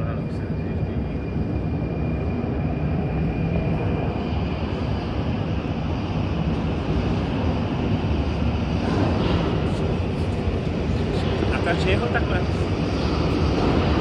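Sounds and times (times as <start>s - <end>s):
metro train rumbling in tunnel: 0.0s - 14.0s.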